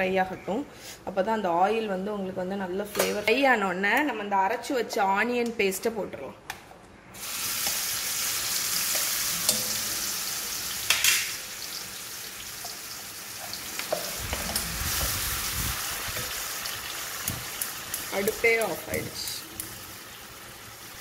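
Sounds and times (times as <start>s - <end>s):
paste sizzling in hot oil: 7.2s - 18.7s.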